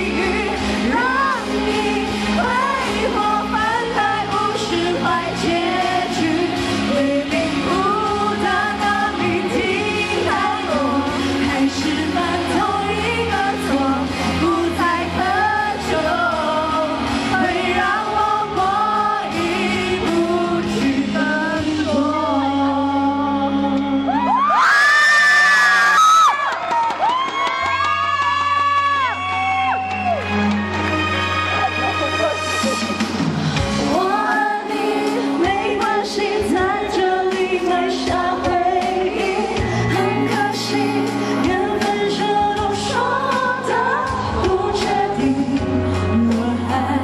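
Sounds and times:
band accompaniment with bass: 0.0 - 24.6, 27.1 - 47.0
woman singing into microphone: 0.0 - 25.1, 33.5 - 47.0.

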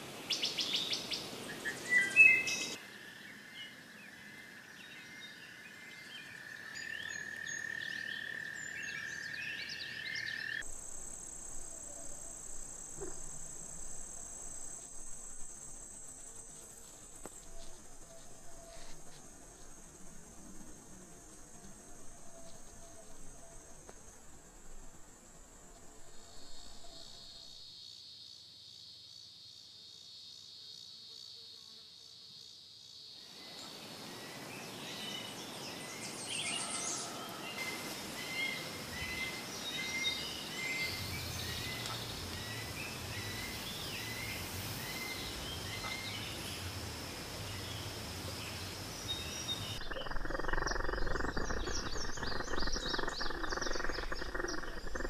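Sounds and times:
insects chirping: 0.0 - 55.0
crickets trilling: 0.1 - 30.9, 32.4 - 55.0.

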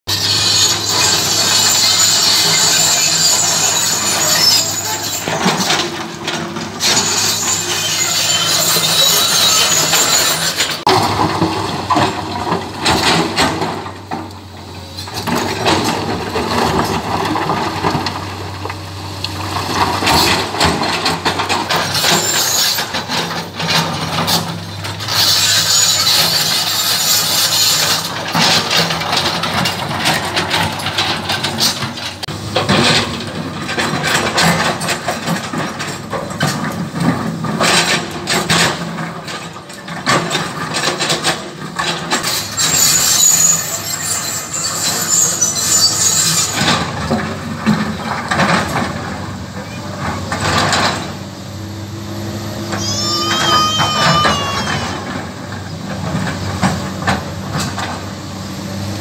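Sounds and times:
diesel engine running: 45.1 - 59.0.

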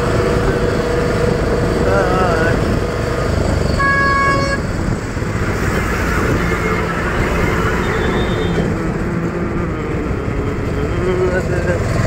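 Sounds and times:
auto-rickshaw engine and road rumble: 0.0 - 12.0
horn toot: 3.7 - 4.6, 5.7 - 8.8.

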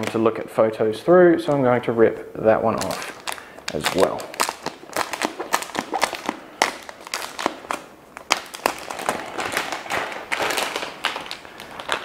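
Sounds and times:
plastic film being peeled off: 2.7 - 12.0.

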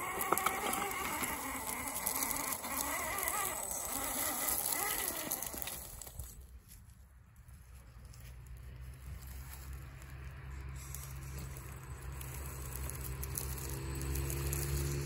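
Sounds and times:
small electric motor whining: 0.0 - 6.4, 10.5 - 15.0
clicks of tyres on stones: 0.0 - 15.0.

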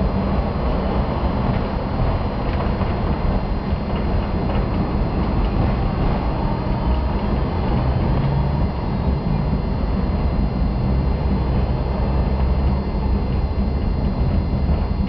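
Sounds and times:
steel wheels clattering on rails: 0.0 - 9.5
tram rumble: 0.0 - 15.0.

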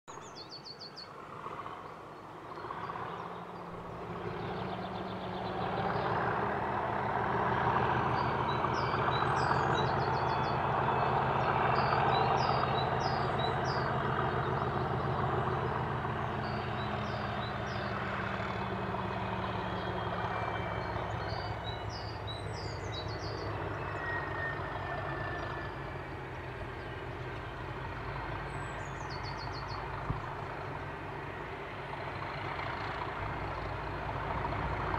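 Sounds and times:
diesel locomotive engine drone: 0.1 - 34.9
small birds chirping: 8.2 - 24.1, 26.7 - 30.5.

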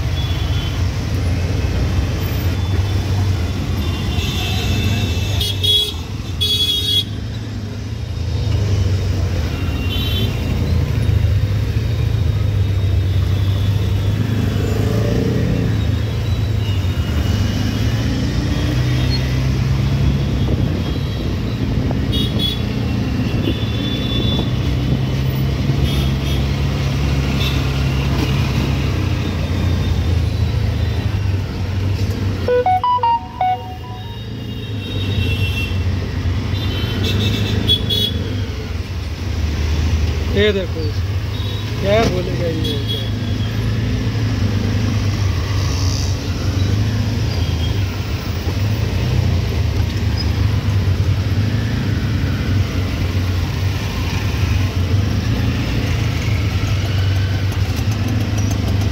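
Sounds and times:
vehicle horn toots: 32.5 - 34.5.

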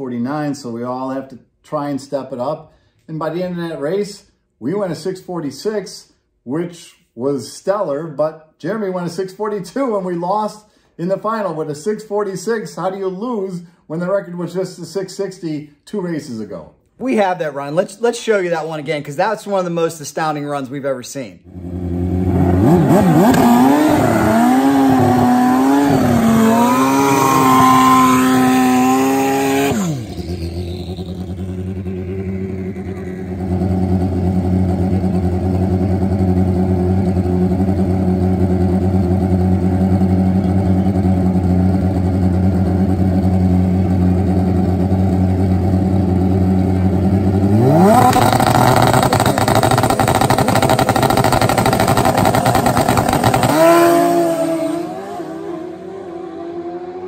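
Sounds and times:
motorcycle engine revving: 21.4 - 57.0.

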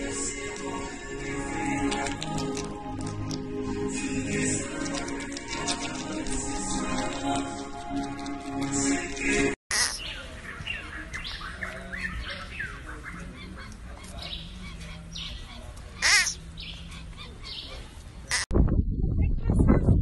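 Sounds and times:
sloth squeaky cries: 9.7 - 10.0, 16.0 - 16.4.

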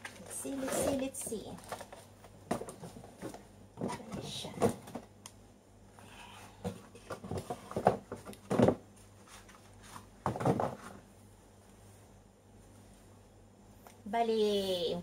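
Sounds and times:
paper packaging rustling: 0.0 - 4.4.

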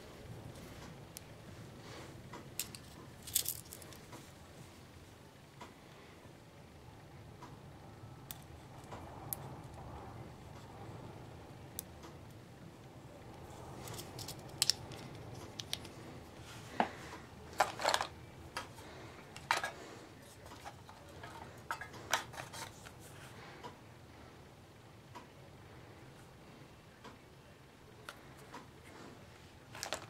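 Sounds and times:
faint steady hum: 0.0 - 30.0.

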